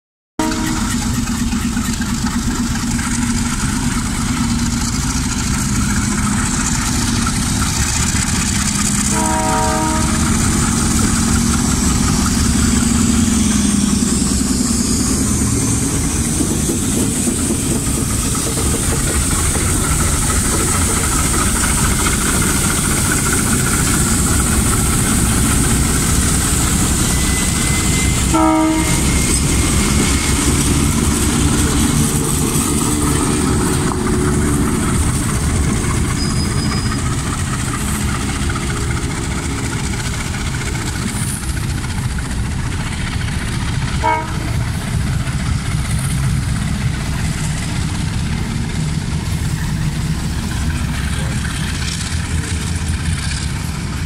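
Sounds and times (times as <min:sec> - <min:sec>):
train horn blasts: 0:00.4 - 0:01.2, 0:09.0 - 0:10.9, 0:27.3 - 0:29.4, 0:44.0 - 0:44.8
diesel locomotive engines rumbling: 0:00.4 - 0:54.0
train wheels on rails: 0:00.4 - 0:54.0.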